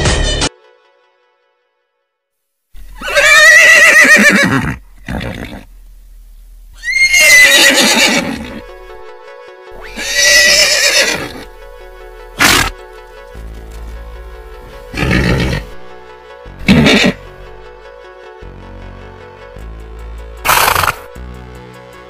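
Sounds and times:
horse whinnying: 0:02.8 - 0:05.7, 0:06.8 - 0:08.6, 0:09.8 - 0:11.4, 0:12.4 - 0:12.8, 0:14.9 - 0:15.8, 0:16.6 - 0:17.2, 0:20.5 - 0:21.1.

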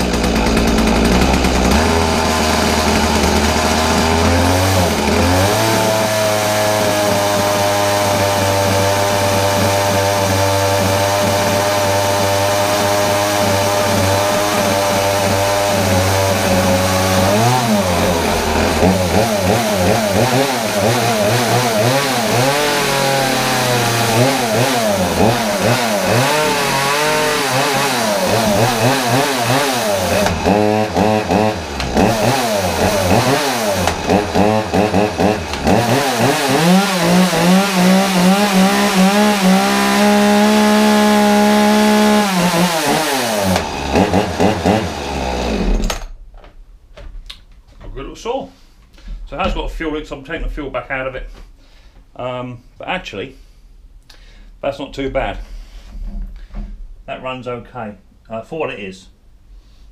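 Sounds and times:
chainsaw revving: 0:00.0 - 0:46.1.

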